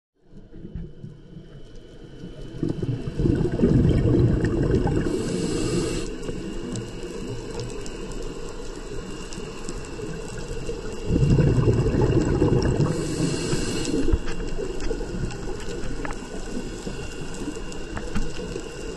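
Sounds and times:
bubbling diver exhalations: 2.5s - 6.1s, 10.9s - 15.7s
regulator hiss: 4.2s - 18.9s.

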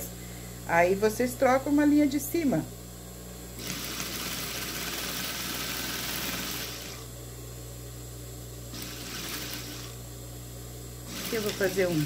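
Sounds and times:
steady low hum: 0.0s - 12.0s
sewing machine running: 3.6s - 7.1s, 8.7s - 10.0s, 11.1s - 12.0s.

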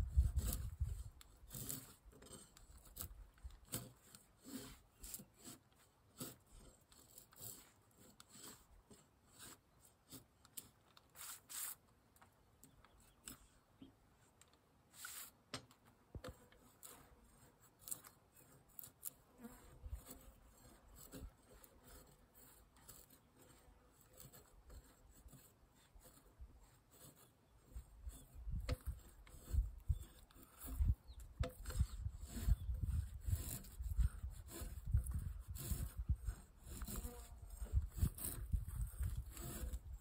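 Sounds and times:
rustles: 0.0s - 25.4s.

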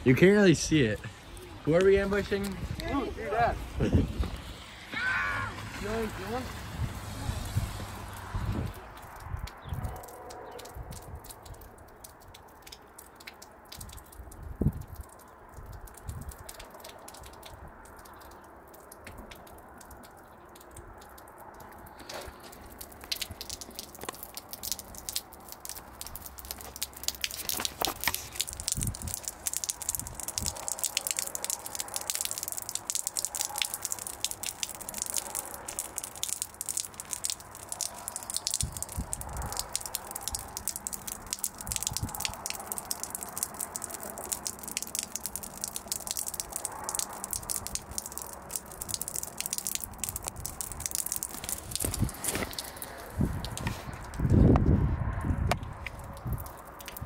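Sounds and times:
wet snow crunching: 0.0s - 8.9s, 21.7s - 31.0s, 49.3s - 55.2s.

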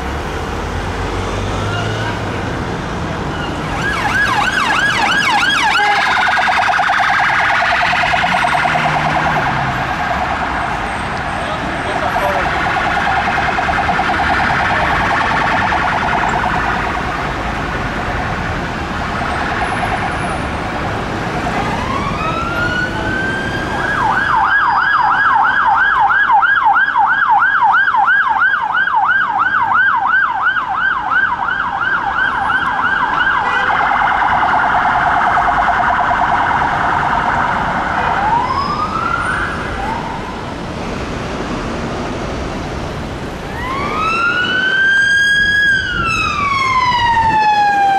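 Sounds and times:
low traffic rumble: 0.0s - 47.9s
police sirens wailing: 0.0s - 47.9s.

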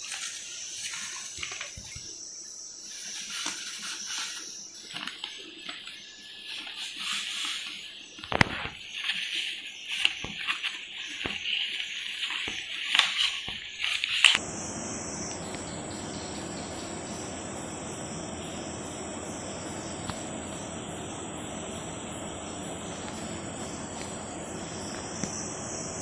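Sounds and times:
paper rustling: 3.0s - 14.4s
flour hissing as it pours: 6.4s - 26.0s
steady hiss: 14.3s - 26.0s.

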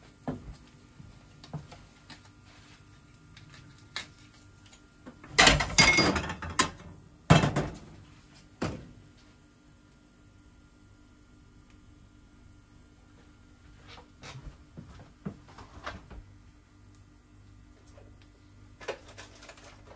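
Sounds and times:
plates clattering on steel counter: 5.3s - 7.8s.

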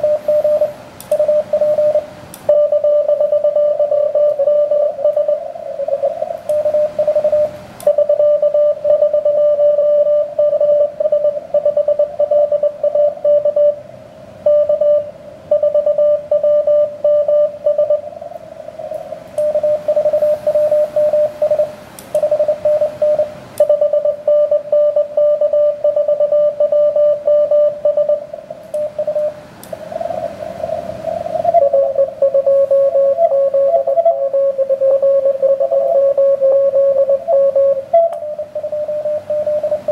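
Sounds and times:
morse code tone: 0.0s - 13.8s, 14.4s - 18.1s, 19.4s - 29.4s, 31.4s - 39.9s
radio band hiss: 4.9s - 7.7s.

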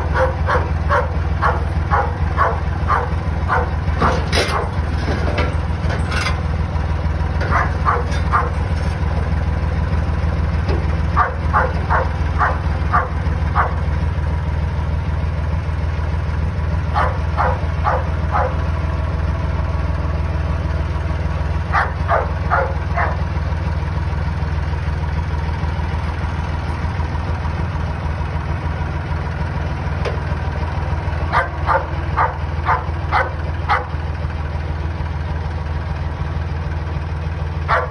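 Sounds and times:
dog barking: 0.0s - 3.8s, 7.5s - 8.6s, 11.2s - 13.8s, 17.0s - 18.6s, 21.7s - 23.2s, 31.3s - 34.0s, 37.7s - 37.9s
tractor engine running: 0.0s - 37.9s.

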